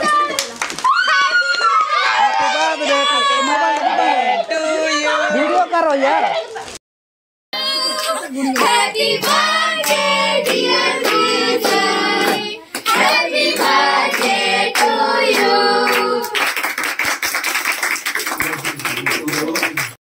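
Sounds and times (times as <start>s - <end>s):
voices singing: 1.8s - 6.5s, 7.6s - 16.4s
loose applause: 7.6s - 20.0s
hands clapping in time: 13.6s - 20.0s.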